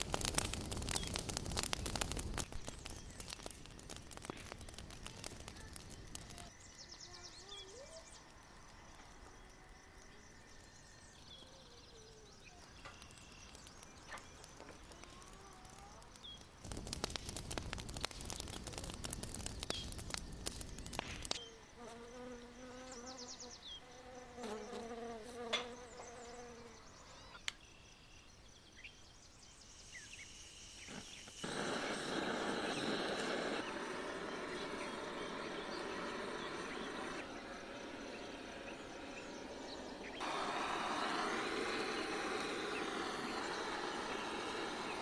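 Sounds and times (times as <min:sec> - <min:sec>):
dense crackling clicks: 0:00.0 - 0:06.5, 0:12.8 - 0:21.4
small birds chirping: 0:00.0 - 0:45.0
fly buzzing: 0:20.8 - 0:26.8, 0:30.7 - 0:45.0
steady rushing noise: 0:31.4 - 0:45.0.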